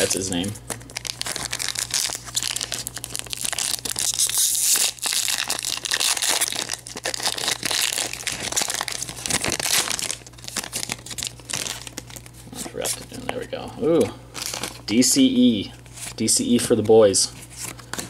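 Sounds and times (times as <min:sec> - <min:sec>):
foil wrapper crinkling: 0:00.0 - 0:13.3, 0:14.3 - 0:15.0.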